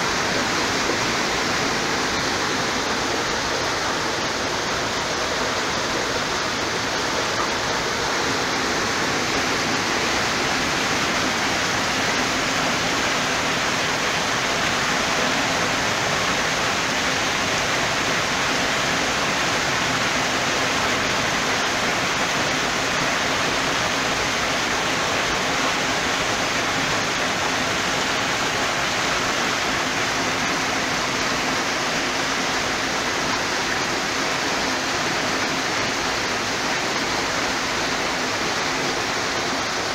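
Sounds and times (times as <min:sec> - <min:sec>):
water pouring and rushing: 0:00.0 - 0:39.9.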